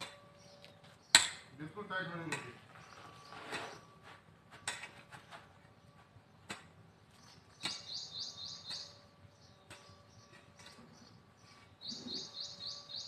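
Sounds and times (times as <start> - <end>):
bird chirping: 2.7 - 4.0, 6.8 - 13.0.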